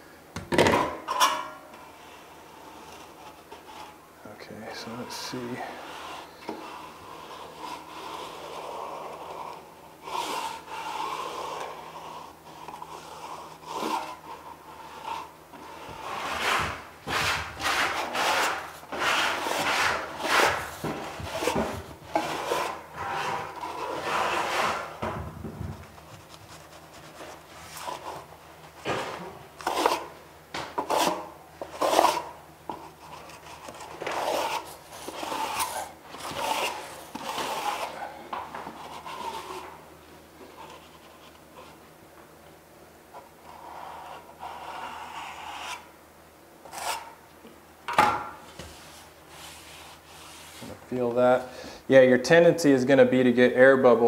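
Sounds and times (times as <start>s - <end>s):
trowel scraping membrane: 5.6s - 25.0s, 33.1s - 38.1s.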